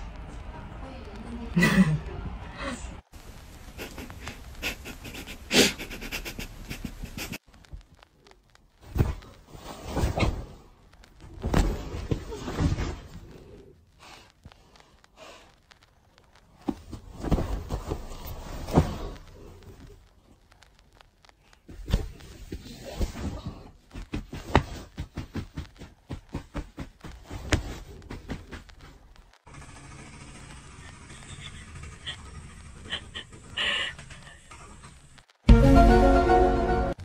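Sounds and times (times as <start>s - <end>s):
rustling of bedding: 3.2s - 29.3s.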